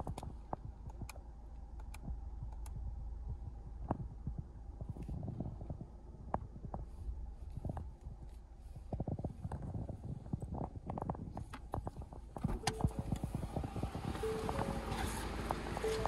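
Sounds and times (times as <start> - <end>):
things handled in car cabin: 4.8 - 16.0
dashboard warning chime beeps: 12.6 - 16.0.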